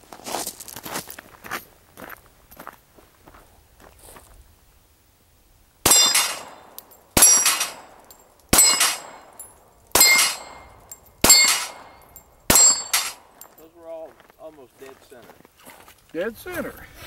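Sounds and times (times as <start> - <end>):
pistol shots: 5.8 - 13.4
steel plate clanging: 5.9 - 13.6.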